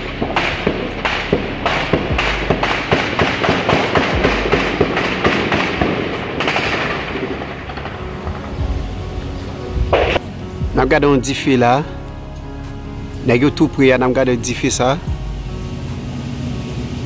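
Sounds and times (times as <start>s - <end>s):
rapid gunfire: 0.2s - 8.0s.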